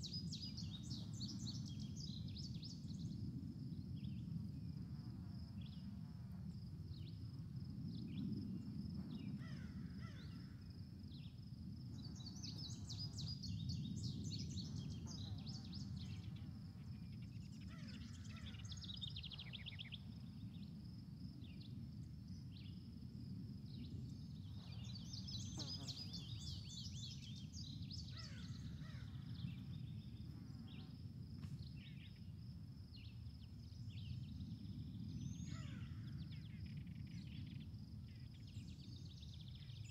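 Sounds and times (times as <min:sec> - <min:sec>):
high insect-like buzz: 0:24.5 - 0:27.1.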